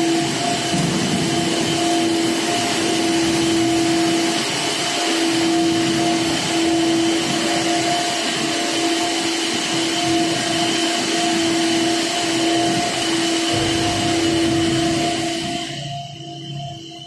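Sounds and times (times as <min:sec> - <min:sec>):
machinery whine: 0:00.0 - 0:17.0
even rushing noise: 0:13.5 - 0:16.0
low rumble: 0:13.5 - 0:16.2.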